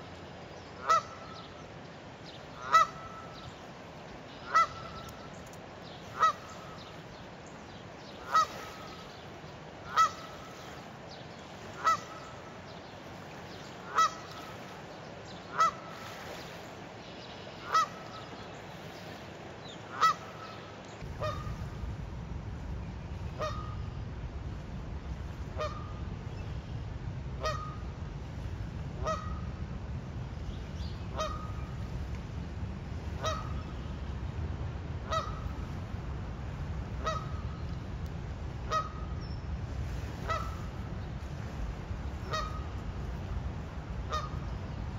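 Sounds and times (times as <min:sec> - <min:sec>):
goose honking: 0:00.8 - 0:01.3, 0:02.6 - 0:03.4, 0:04.4 - 0:05.0, 0:06.2 - 0:06.7, 0:08.2 - 0:09.0, 0:09.9 - 0:10.4, 0:11.8 - 0:12.3, 0:13.9 - 0:14.5, 0:15.5 - 0:15.8, 0:17.6 - 0:18.2, 0:19.9 - 0:20.6, 0:21.2 - 0:21.5, 0:23.4 - 0:23.8, 0:27.4 - 0:27.8, 0:29.0 - 0:29.5, 0:31.1 - 0:31.6, 0:33.2 - 0:33.6, 0:35.0 - 0:35.5, 0:37.0 - 0:37.4, 0:38.7 - 0:39.0, 0:40.2 - 0:40.6, 0:42.2 - 0:42.8, 0:44.1 - 0:44.4
low rumbling noise: 0:20.8 - 0:44.9.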